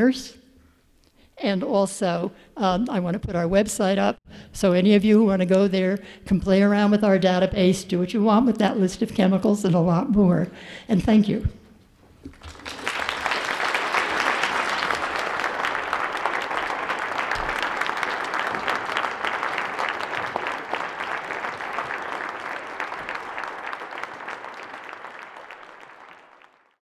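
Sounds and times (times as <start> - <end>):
audience applauding: 12.3 - 26.8.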